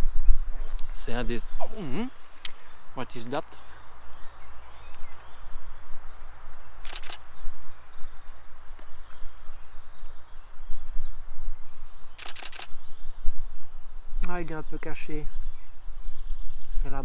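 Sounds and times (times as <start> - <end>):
songbirds calling: 0.0 - 17.0
camera shutter burst: 6.8 - 7.3, 12.2 - 12.7.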